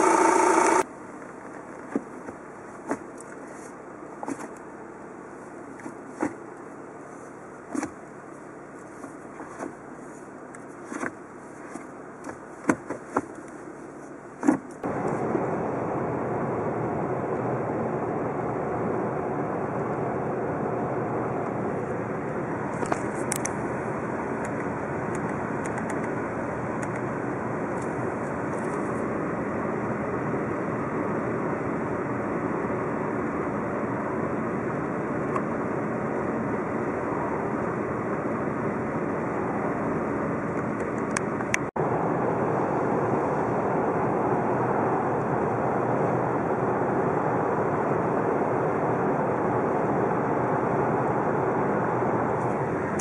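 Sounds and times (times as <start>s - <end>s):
car cabin tyre and engine drone: 0.0s - 53.0s.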